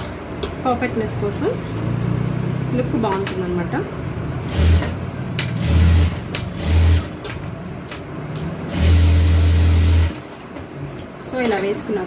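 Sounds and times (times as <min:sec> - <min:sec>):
electric sewing machine running: 0:04.4 - 0:05.0, 0:05.6 - 0:07.2, 0:08.7 - 0:10.3.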